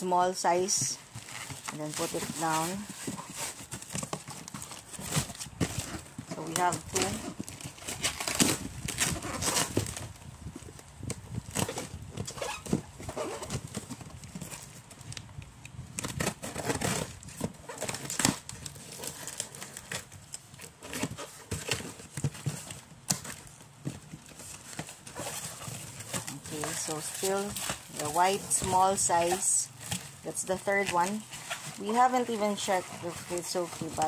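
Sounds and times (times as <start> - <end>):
cardboard boxes being handled: 0.0 - 34.0
packaging rustling: 0.2 - 34.0
scissors cutting cardboard: 1.0 - 10.1, 15.9 - 34.0.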